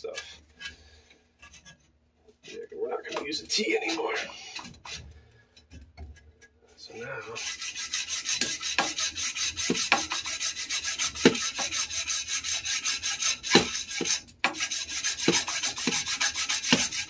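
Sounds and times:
hacksaw cutting metal pipe: 7.3s - 17.0s.

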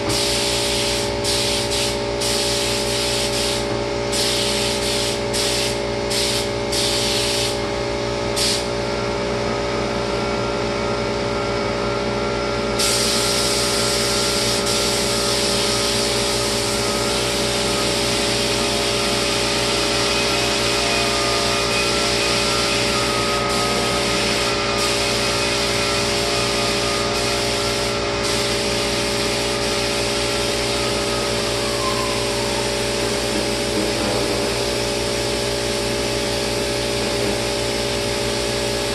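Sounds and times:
spray gun hissing: 0.1s - 7.6s, 8.4s - 8.7s, 12.8s - 19.9s, 21.8s - 31.6s
motor humming: 13.6s - 34.8s.

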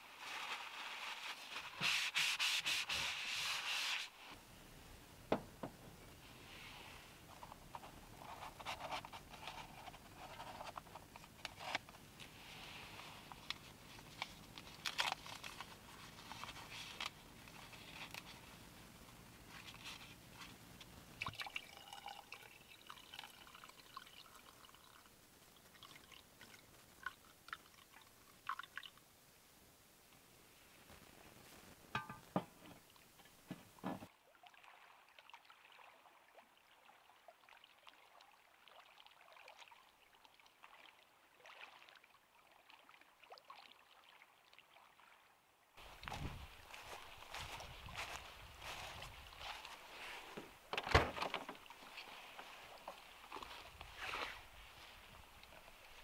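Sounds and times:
paper towel rubbing on wood: 0.2s - 4.3s
water poured into mug: 21.2s - 25.1s.

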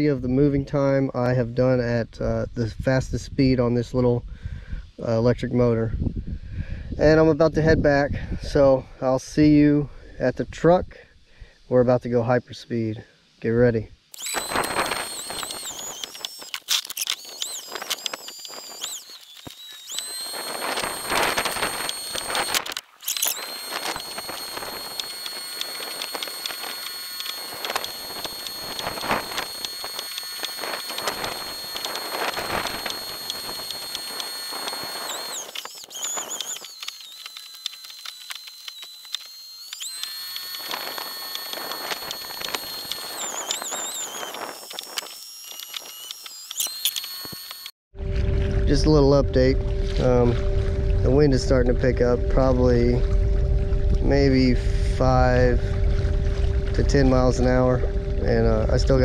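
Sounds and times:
electric drive whine: 14.1s - 59.0s.

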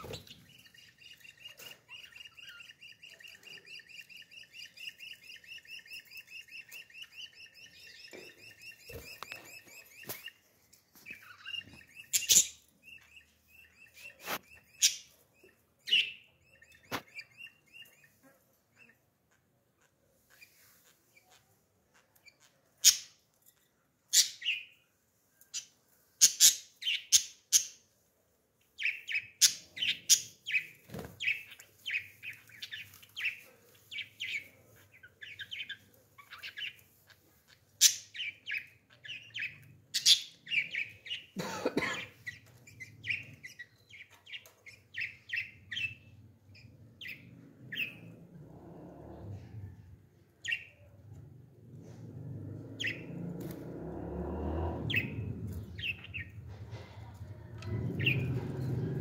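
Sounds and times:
budgerigars chirping: 0.0s - 10.4s, 11.0s - 23.2s, 24.1s - 24.7s, 28.8s - 48.2s, 50.4s - 50.8s, 52.8s - 53.6s, 54.9s - 56.5s, 57.7s - 58.8s.

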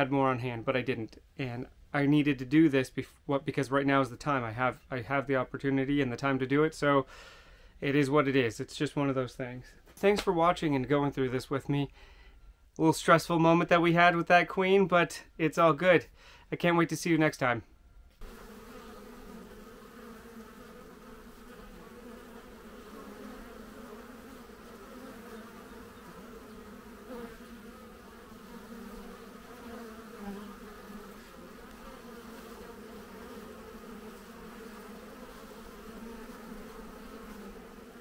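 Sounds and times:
bees buzzing: 18.2s - 38.0s.

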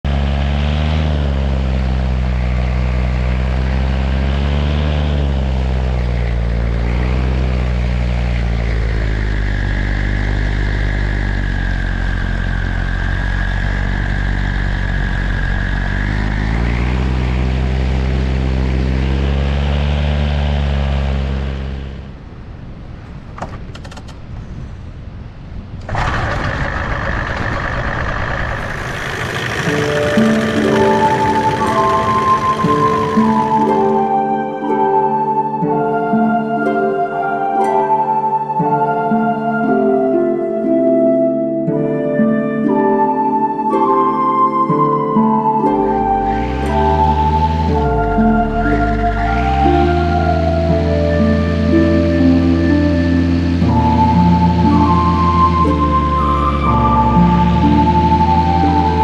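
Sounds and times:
paramotor engine and propeller: 0.0s - 36.4s, 41.7s - 59.0s
noisy rush: 21.6s - 34.6s, 45.5s - 59.0s
high steady whine: 25.8s - 34.4s, 45.7s - 59.0s.

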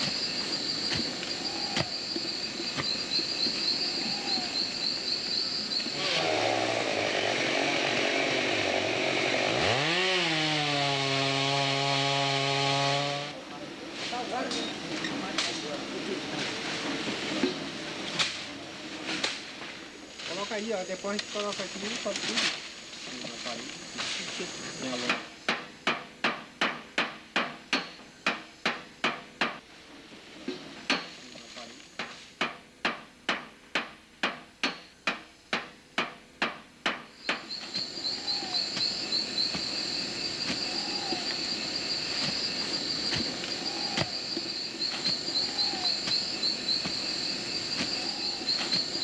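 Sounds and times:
insects chirring: 0.0s - 10.5s, 13.5s - 25.9s, 30.1s - 32.1s, 37.0s - 49.0s.

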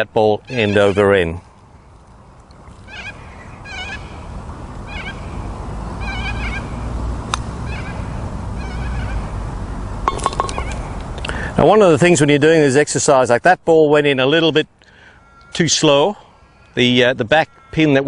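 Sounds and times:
birds chirping: 0.0s - 7.0s, 10.1s - 11.5s
putter striking golf ball: 10.0s - 11.1s
ball clattering into cup: 10.1s - 10.8s.

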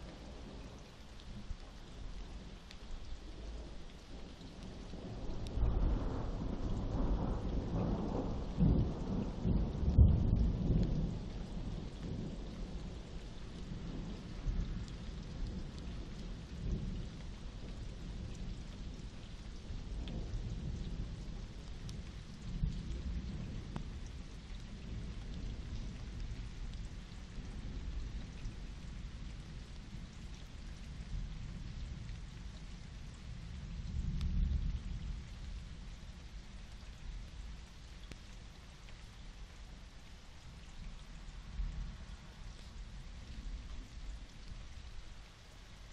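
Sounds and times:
steady rain: 0.0s - 45.9s
thunder rumbling: 4.7s - 30.2s.

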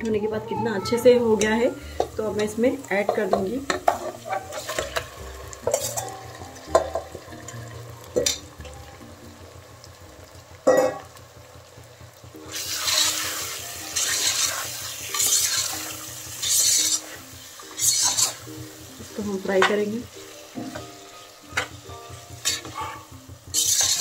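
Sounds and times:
meat sizzling in hot oil: 1.3s - 24.0s
utensils knocking against pot: 1.4s - 8.8s, 10.6s - 11.1s, 20.6s - 21.8s, 22.4s - 24.0s.

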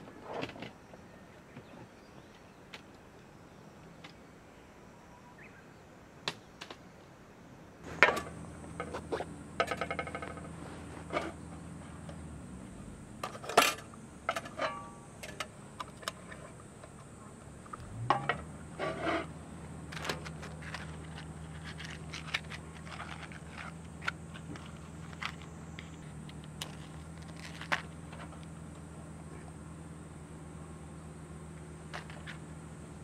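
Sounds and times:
lantern clinking on metal table: 13.3s - 15.5s.

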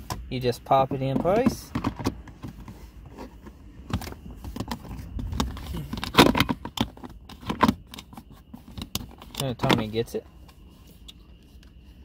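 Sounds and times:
hard plastic clicking and rattling: 1.0s - 2.8s, 3.4s - 10.0s.

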